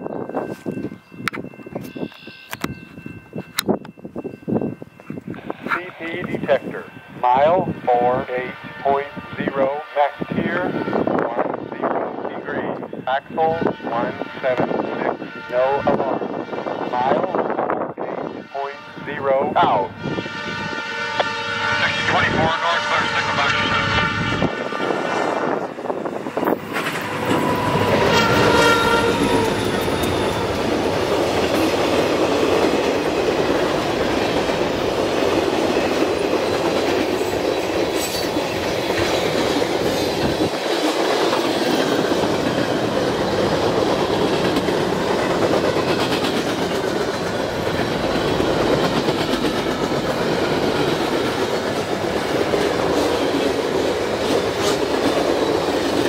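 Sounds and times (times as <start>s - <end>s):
freight train passing: 0.0s - 56.0s
train horn: 6.7s - 17.4s, 18.0s - 25.7s, 26.4s - 31.0s
wheels clacking over rail joints: 26.6s - 56.0s.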